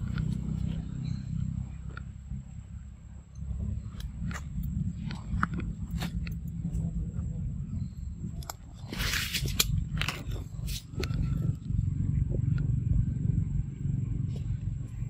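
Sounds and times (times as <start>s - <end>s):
steady low rumble: 0.0s - 15.0s
monkey chewing and biting fruit: 3.8s - 7.0s.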